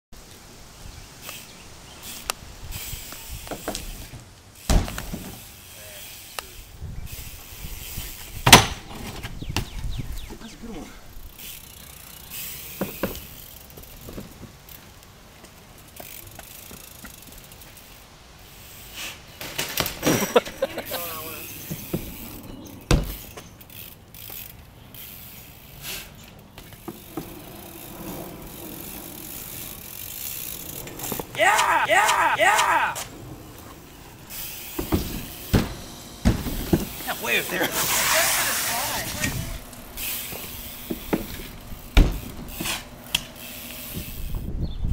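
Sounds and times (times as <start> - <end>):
bike wheels knocking on pavement: 3.4 - 5.4, 8.4 - 10.0, 12.7 - 14.6, 21.5 - 23.5, 26.5 - 27.9, 34.6 - 37.7, 40.2 - 44.2
bike clicks and rattles: 11.1 - 44.5
freewheel hub clicking: 11.2 - 14.1, 15.7 - 18.0, 21.4 - 31.8.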